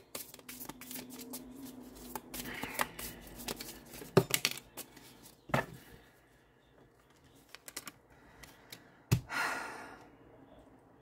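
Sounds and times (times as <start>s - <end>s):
cards rustling: 0.0s - 5.4s, 7.0s - 8.8s.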